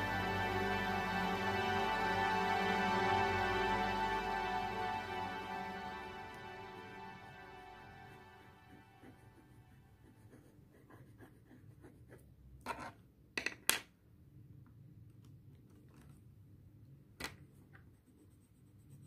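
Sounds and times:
pencil scratching on paper: 8.9 - 12.9, 17.7 - 19.0.

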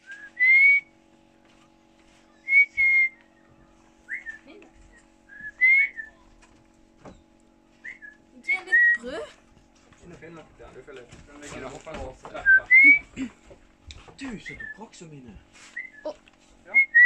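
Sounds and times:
short loud whistles: 0.0 - 0.9, 2.4 - 3.2, 5.3 - 6.1, 15.7 - 16.1
faint steady hum: 0.0 - 17.0.

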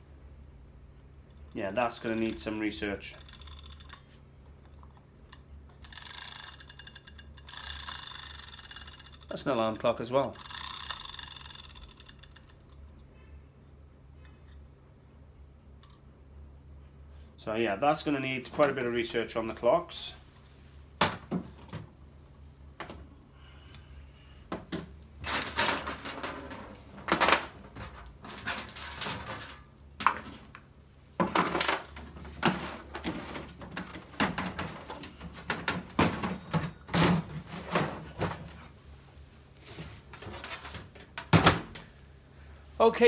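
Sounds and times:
hard objects clattering in plastic crate: 31.2 - 38.7.

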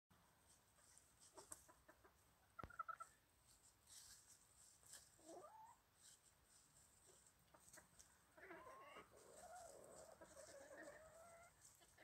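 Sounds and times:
chickens clucking: 0.7 - 12.0
rustling in dry leaves: 3.4 - 12.0.

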